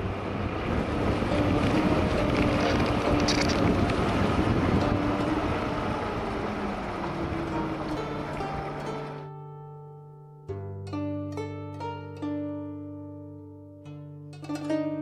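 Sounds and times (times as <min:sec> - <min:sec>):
wind rushing over microphone: 0:00.0 - 0:09.2
soft music: 0:00.0 - 0:15.0.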